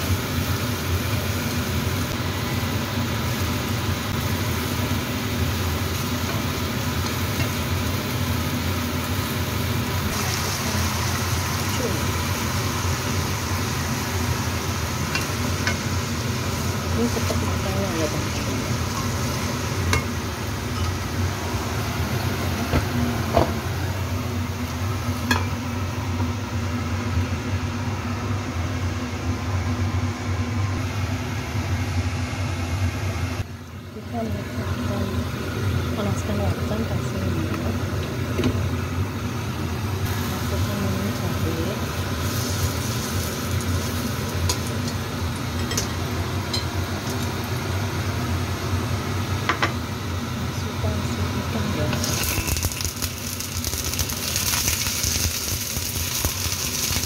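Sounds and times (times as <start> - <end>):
mushrooms stir-frying in a pan: 0.0 - 29.7, 30.7 - 57.0.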